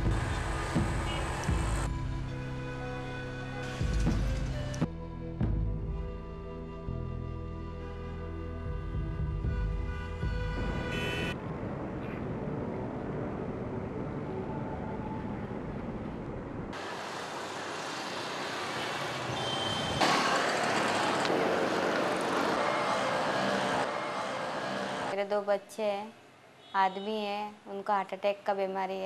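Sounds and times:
road traffic noise: 0:00.0 - 0:04.9, 0:08.7 - 0:25.3
music: 0:00.0 - 0:11.4.

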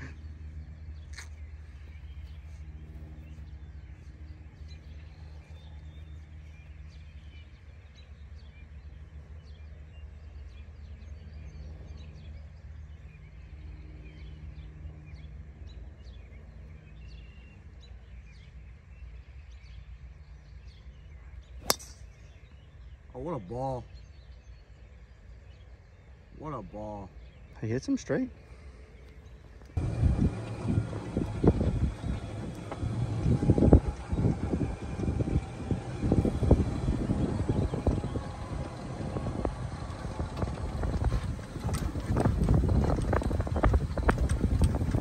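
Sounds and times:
low steady rumble: 0:00.0 - 0:23.5, 0:27.1 - 0:45.0
birds chirping: 0:00.0 - 0:45.0
golf club striking ball: 0:21.6 - 0:22.2.

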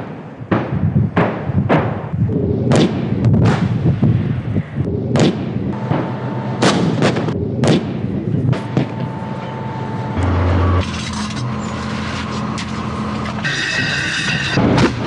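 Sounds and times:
tank guns firing: 0:00.0 - 0:03.9, 0:05.1 - 0:09.8
shells exploding: 0:02.7 - 0:04.0, 0:05.1 - 0:09.0.

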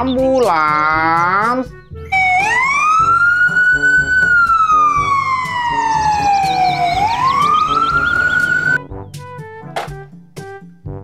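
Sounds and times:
children's music with steady beat: 0:00.0 - 0:11.0
ambulance siren wailing: 0:02.1 - 0:08.8.

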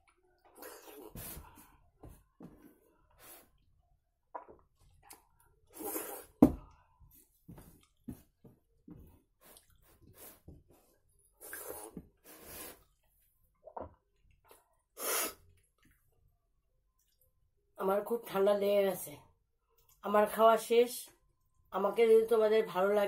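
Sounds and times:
person slurping: 0:00.5 - 0:01.4, 0:05.7 - 0:06.4, 0:11.4 - 0:13.0, 0:15.0 - 0:15.4.

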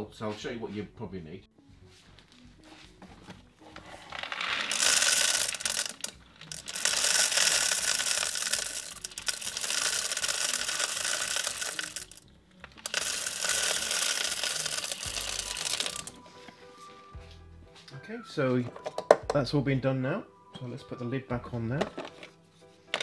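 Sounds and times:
salt grains pouring: 0:04.1 - 0:12.2, 0:12.8 - 0:16.2.

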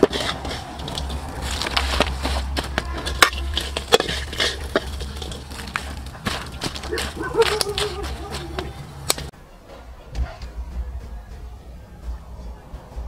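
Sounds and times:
crab shells clattering and crunching: 0:00.0 - 0:09.3.

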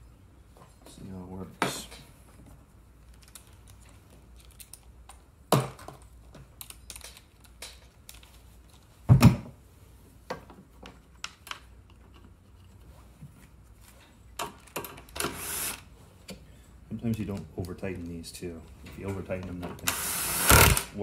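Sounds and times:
screws and driver clicking: 0:19.8 - 0:20.9.

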